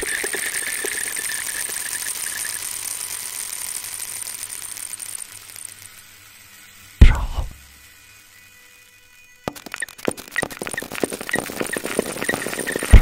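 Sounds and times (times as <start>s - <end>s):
thin high tone: 0.0s - 6.0s
electronic crackling and clicking: 0.0s - 8.5s, 9.2s - 13.0s.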